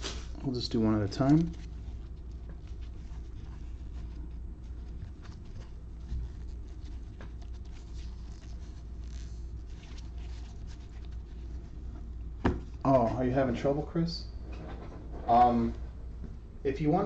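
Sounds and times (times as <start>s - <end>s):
steady low hum: 0.0s - 17.0s
cards rubbing with small clicks: 0.1s - 12.3s.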